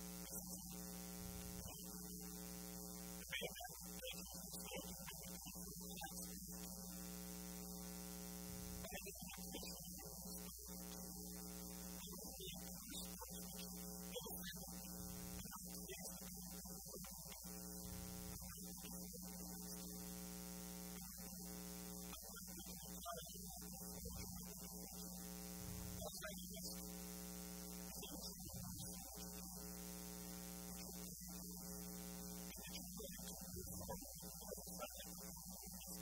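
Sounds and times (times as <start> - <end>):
electrical mains hum: 0.0 - 36.0.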